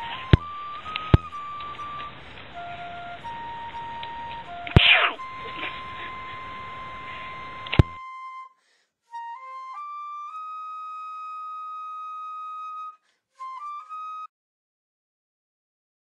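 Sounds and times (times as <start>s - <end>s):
hiss with steady high tone: 0.0s - 7.8s
solo flute playing: 0.0s - 14.3s.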